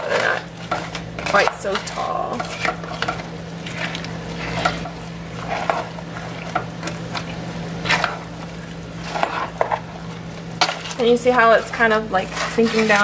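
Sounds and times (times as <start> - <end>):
spoon scraping thick filling: 0.0 - 8.3, 9.0 - 9.9, 10.6 - 13.0
steady low hum: 0.0 - 13.0.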